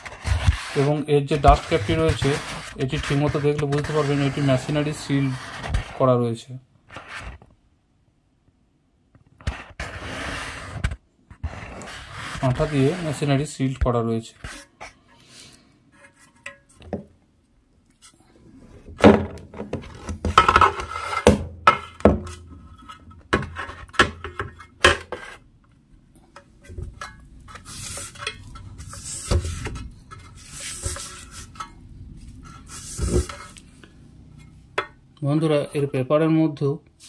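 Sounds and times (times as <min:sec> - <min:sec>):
rustling scrapes: 0:00.0 - 0:06.0, 0:09.4 - 0:13.6, 0:14.2 - 0:16.8, 0:19.6 - 0:25.5, 0:26.6 - 0:34.7.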